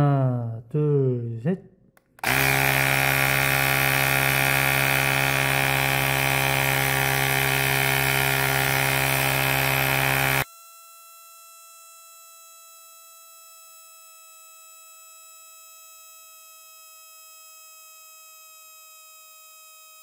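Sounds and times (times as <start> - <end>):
tyre inflator compressor buzzing: 2.0 - 10.5.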